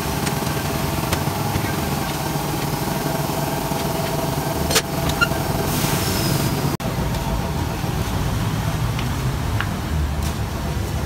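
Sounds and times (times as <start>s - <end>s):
tire iron levering tyre: 0.0s - 6.8s
tire changer machine hum: 0.0s - 8.8s
low rumble of street traffic: 0.0s - 11.0s.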